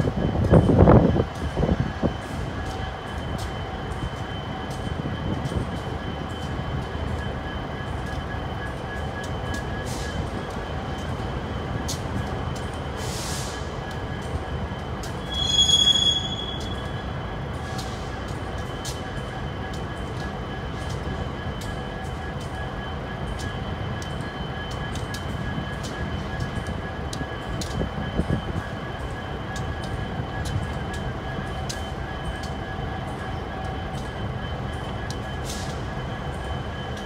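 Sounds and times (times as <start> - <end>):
freight train rumbling on rails: 0.0 - 37.0
wheel squeal: 15.2 - 17.0.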